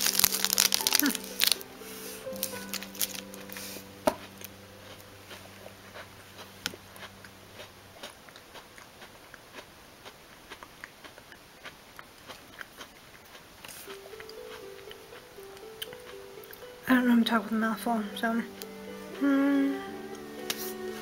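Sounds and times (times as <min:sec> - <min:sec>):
person chewing crunchy snack: 0:00.0 - 0:16.7.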